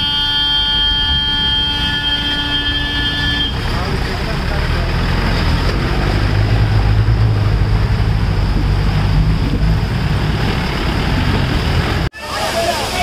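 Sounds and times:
engines rumbling at low revs: 2.5s - 12.1s
water rushing and splashing: 3.5s - 13.0s.

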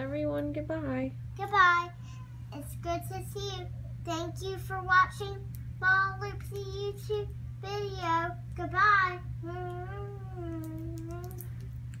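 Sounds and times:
girl singing in a high voice: 2.6s - 11.4s.

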